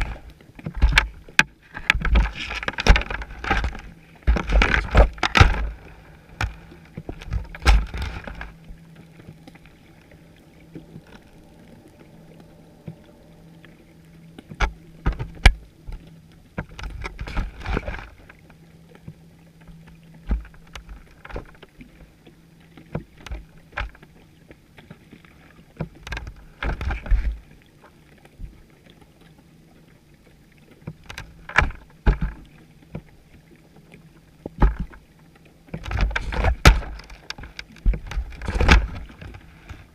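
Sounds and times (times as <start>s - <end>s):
muffled underwater knocks: 0.0s - 8.5s, 30.9s - 33.1s, 34.5s - 35.0s, 35.8s - 39.8s
water swishing: 0.0s - 39.9s.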